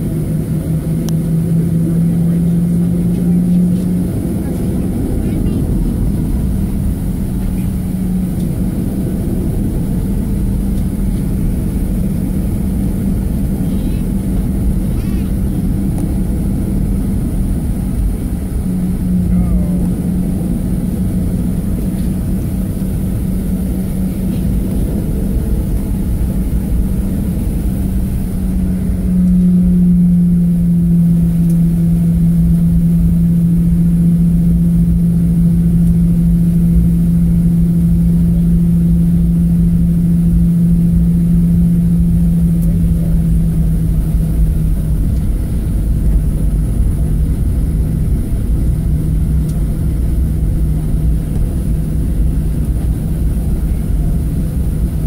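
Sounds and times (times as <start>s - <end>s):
jet engine drone in cabin: 0.0s - 55.0s.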